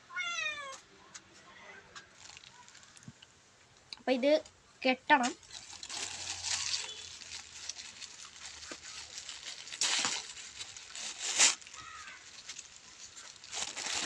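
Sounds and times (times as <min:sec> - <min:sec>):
plastic bag crinkling: 0:02.1 - 0:03.2, 0:05.2 - 0:14.0.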